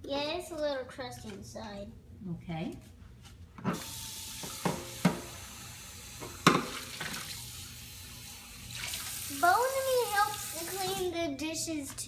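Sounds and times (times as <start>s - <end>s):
faucet running into sink: 3.8s - 11.0s
dishes knocking: 4.4s - 5.3s, 6.4s - 6.8s.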